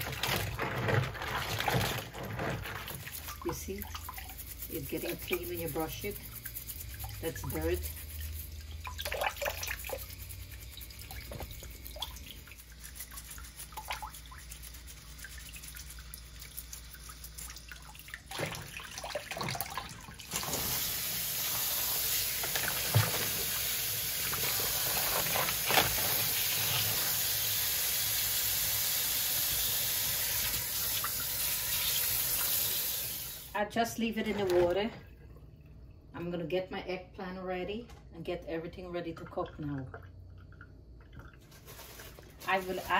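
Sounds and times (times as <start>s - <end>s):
toothbrush scrubbing shells: 0.0s - 18.3s, 20.8s - 27.3s
water pouring into basin: 0.0s - 33.6s.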